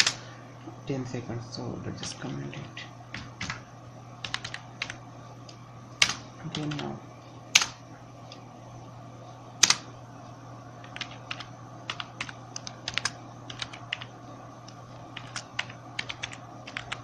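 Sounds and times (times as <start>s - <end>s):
keyboard typing: 3.1s - 3.6s, 4.2s - 5.0s, 6.0s - 6.9s, 7.5s - 7.8s, 9.6s - 9.9s, 10.8s - 17.0s.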